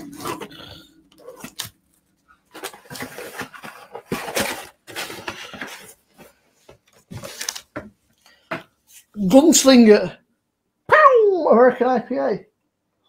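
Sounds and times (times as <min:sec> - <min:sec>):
packaging rustling: 0:00.0 - 0:09.0.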